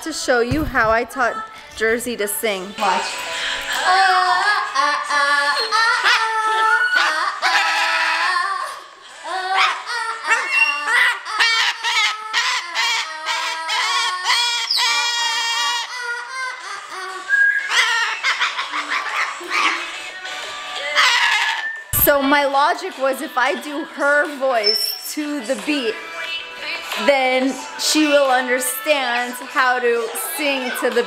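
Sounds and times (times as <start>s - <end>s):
cockatoo singing: 3.0s - 22.1s, 24.5s - 25.1s.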